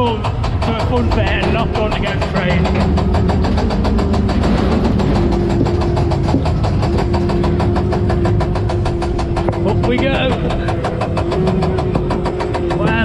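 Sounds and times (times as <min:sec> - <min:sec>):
machinery hum: 0:00.0 - 0:13.0
ride car clattering up lift hill: 0:00.0 - 0:13.0.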